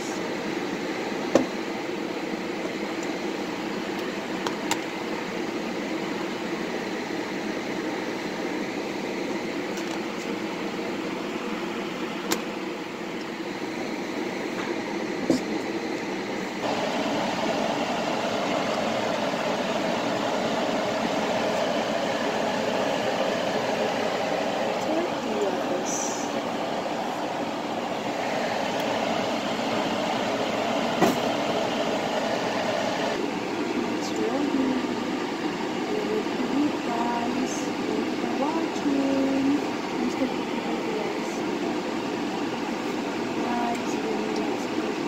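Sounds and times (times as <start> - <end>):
steady whirring: 11.7 - 45.0.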